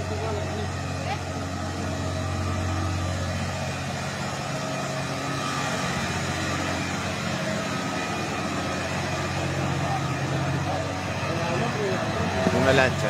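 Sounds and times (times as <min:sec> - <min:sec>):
fire engine motor humming: 0:00.0 - 0:13.0.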